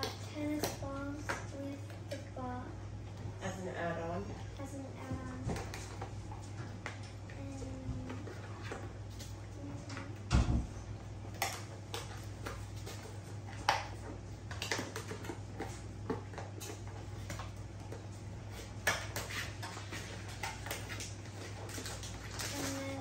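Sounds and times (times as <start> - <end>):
steady low hum: 0.0 - 23.0
packaged toys clattering and rustling: 19.8 - 23.0.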